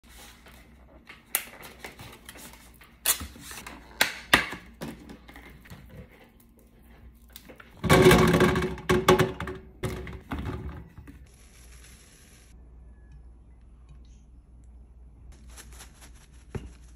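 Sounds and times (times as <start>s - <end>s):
salt sprinkling hiss: 11.3s - 12.6s, 15.3s - 16.9s.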